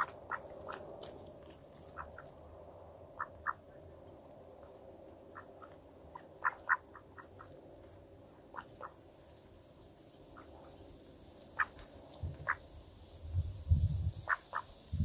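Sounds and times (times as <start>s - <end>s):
low steady background noise: 0.0s - 15.0s
birds making soft croaky sounds: 1.8s - 2.4s, 4.6s - 7.6s, 11.5s - 12.7s.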